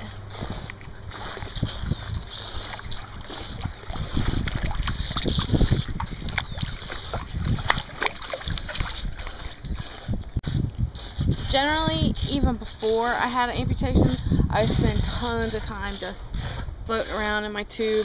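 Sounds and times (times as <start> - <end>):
wind rumbling on microphone: 0.0 - 18.0
pool water sloshing and splashing: 0.3 - 10.2.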